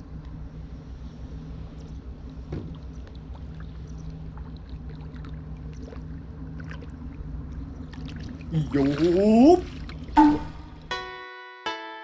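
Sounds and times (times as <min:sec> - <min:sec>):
low hum: 0:00.0 - 0:11.0
fish splashing in water: 0:02.7 - 0:10.2.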